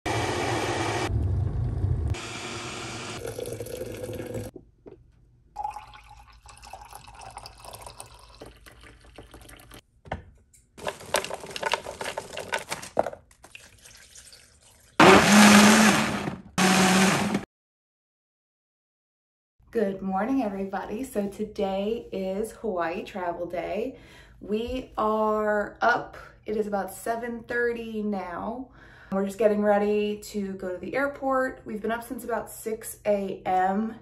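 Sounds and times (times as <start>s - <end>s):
blender running: 0.1s - 4.5s, 15.0s - 17.5s
coffee pouring into mug: 3.2s - 4.5s, 5.6s - 9.8s, 13.4s - 15.0s.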